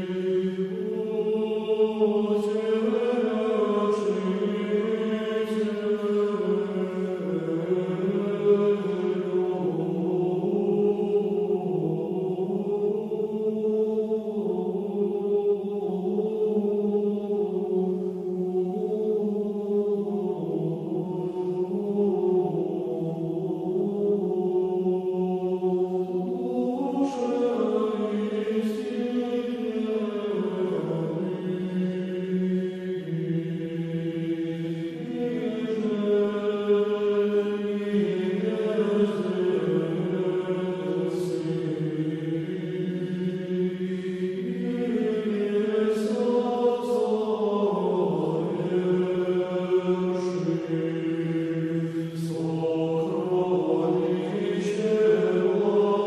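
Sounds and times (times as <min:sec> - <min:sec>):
male choir chanting: 0:00.0 - 0:56.0.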